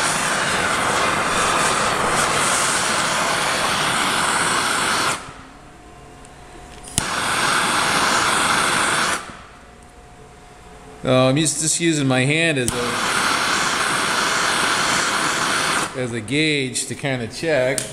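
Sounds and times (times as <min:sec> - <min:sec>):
propane torch hissing: 0:00.0 - 0:05.5, 0:06.9 - 0:09.5, 0:12.6 - 0:16.3
torch igniter click: 0:06.8 - 0:09.4, 0:12.6 - 0:16.0.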